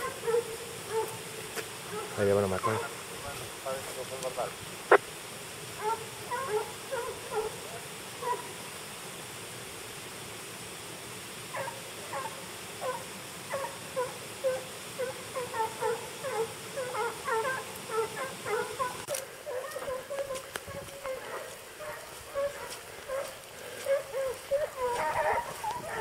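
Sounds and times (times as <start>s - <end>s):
dogs baying and yelping: 0.0s - 1.2s, 1.9s - 3.0s, 5.8s - 8.6s, 11.5s - 26.0s.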